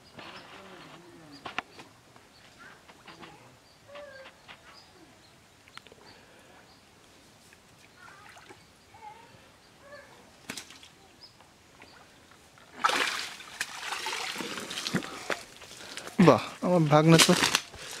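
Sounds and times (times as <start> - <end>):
water splashing off net: 12.8 - 15.4.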